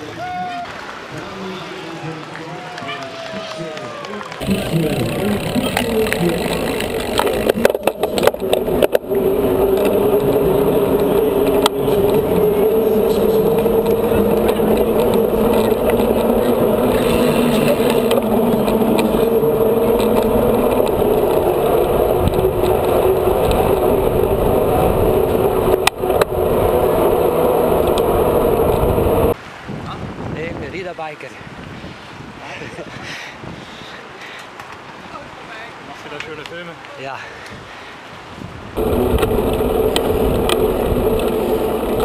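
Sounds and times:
bike tyres rolling on pavement: 0:00.0 - 0:29.4, 0:38.4 - 0:42.0
bike rattling: 0:04.4 - 0:29.4, 0:38.8 - 0:42.0.

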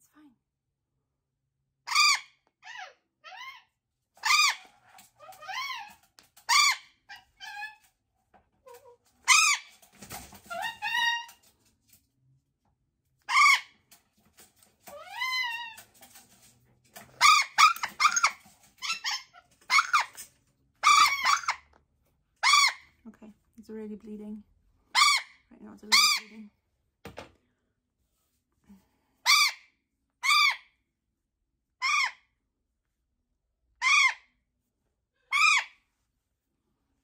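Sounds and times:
parrot screeching squawks: 0:01.9 - 0:07.9, 0:09.2 - 0:09.8, 0:10.5 - 0:11.5, 0:13.2 - 0:13.8, 0:14.9 - 0:15.8, 0:17.2 - 0:21.6, 0:22.4 - 0:22.9, 0:24.9 - 0:26.3, 0:29.2 - 0:30.7, 0:31.8 - 0:32.3, 0:33.8 - 0:34.3, 0:35.2 - 0:35.8.

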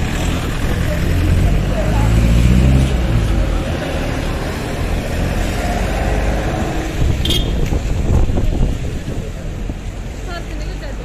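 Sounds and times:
minibus engine moving off: 0:00.0 - 0:07.2
road noise: 0:00.0 - 0:11.0.

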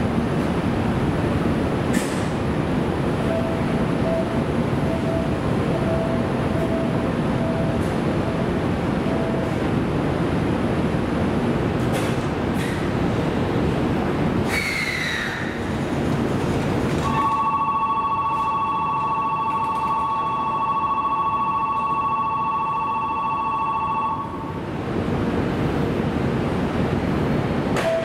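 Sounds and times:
train running: 0:00.0 - 0:28.0
train brake squeal: 0:14.5 - 0:15.6
electric platform bell ringing: 0:17.0 - 0:24.4.

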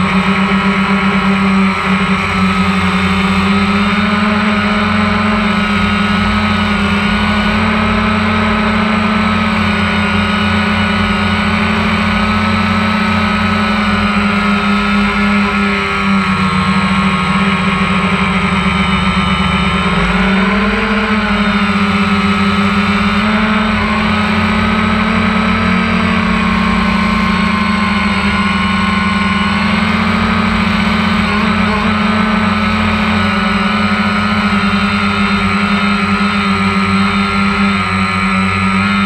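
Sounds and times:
drone propellers buzzing: 0:00.0 - 0:39.0.

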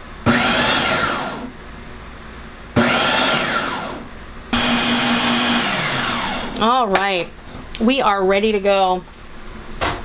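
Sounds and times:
food processor motor pulsing: 0:00.3 - 0:01.5, 0:02.8 - 0:04.0, 0:04.6 - 0:06.6.

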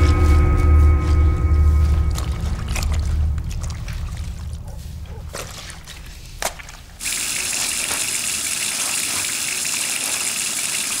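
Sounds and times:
cloth being rinsed: 0:01.8 - 0:11.0
water running into sink: 0:07.0 - 0:11.0.

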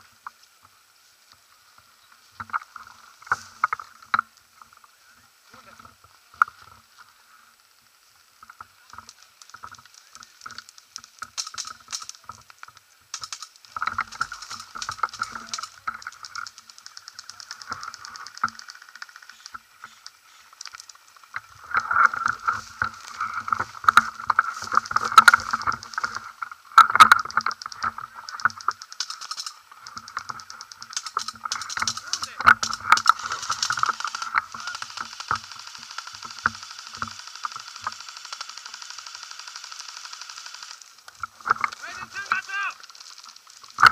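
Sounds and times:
sharp cracks: 0:08.5 - 0:43.9
airsoft guns firing rapid bursts: 0:13.1 - 0:19.6, 0:27.6 - 0:29.6, 0:30.3 - 0:40.9.

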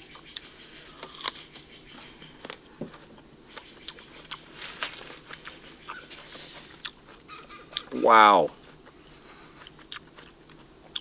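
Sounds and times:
chewing with small crunches: 0:00.0 - 0:07.9, 0:08.5 - 0:11.0
apple bite crunch: 0:00.9 - 0:01.6, 0:09.6 - 0:11.0.

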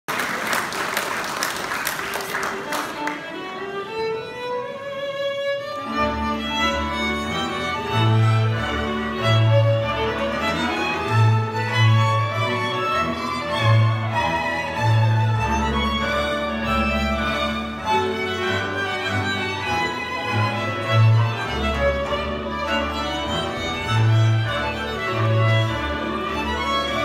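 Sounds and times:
applause: 0:00.1 - 0:03.2
folk band playing: 0:02.3 - 0:27.0
violin solo: 0:02.4 - 0:27.0.

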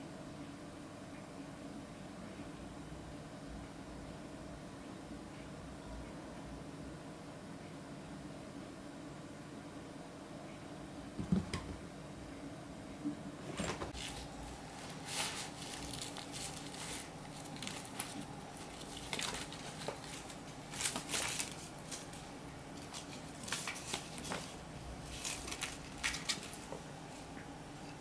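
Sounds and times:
kittens scuffling and scratching: 0:13.9 - 0:27.3.

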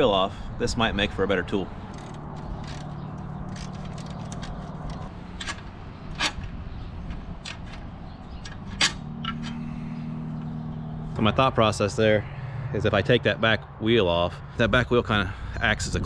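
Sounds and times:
low engine hum: 0:00.0 - 0:16.0
sharp metal clicks and clinks: 0:01.9 - 0:09.7.

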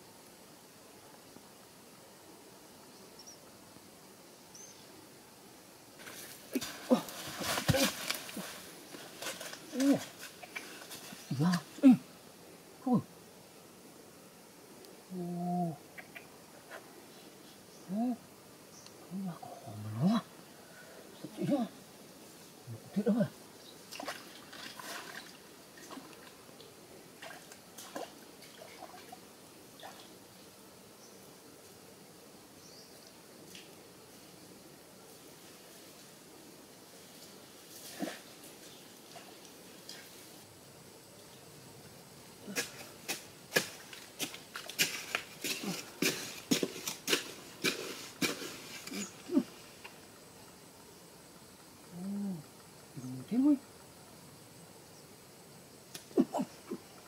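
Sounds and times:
bare feet splashing through stream: 0:06.0 - 0:11.2, 0:23.9 - 0:26.4, 0:27.2 - 0:29.2, 0:42.6 - 0:49.3
faint trickle of running water: 0:23.9 - 0:30.2.

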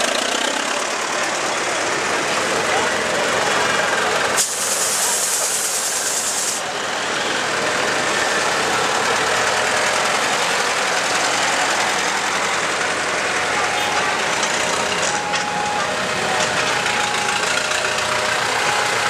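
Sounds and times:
tractor diesel engines running: 0:00.0 - 0:19.0
sharp hiss: 0:04.4 - 0:06.7.

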